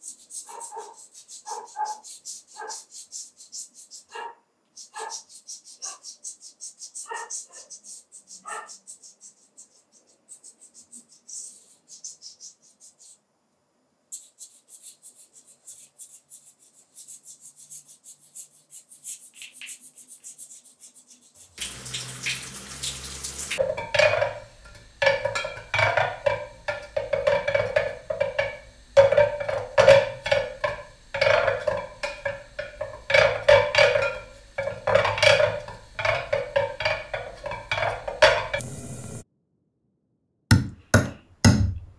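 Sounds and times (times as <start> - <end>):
chalk scratching on wall: 0.0 - 4.2, 4.8 - 13.2, 14.1 - 21.6
tap water running: 21.4 - 39.2.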